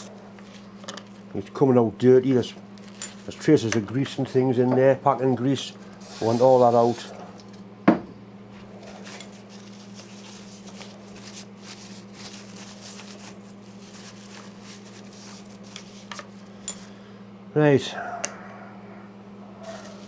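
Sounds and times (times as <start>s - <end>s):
steady low hum: 0.0s - 20.0s
paper towel rustling and rubbing: 8.6s - 16.2s, 19.6s - 20.0s.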